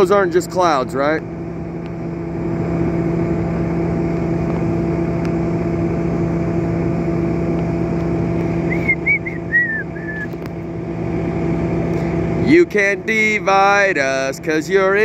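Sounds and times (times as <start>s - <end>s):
low hum: 0.0s - 15.0s
vehicle engine and road noise: 0.0s - 15.0s
short high chirps: 8.7s - 10.3s.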